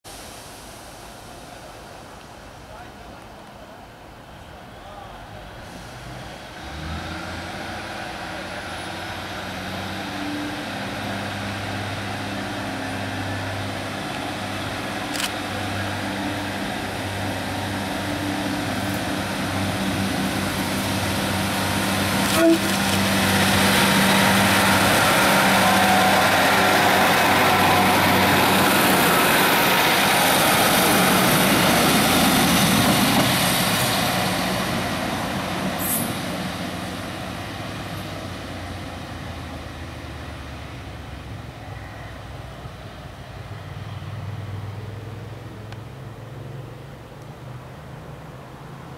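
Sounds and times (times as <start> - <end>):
diesel railcars passing: 0.1 - 48.9.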